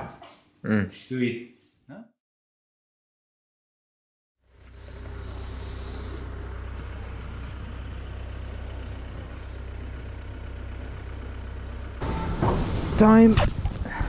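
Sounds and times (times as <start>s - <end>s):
heavy vehicle engine rumble: 4.5s - 14.0s.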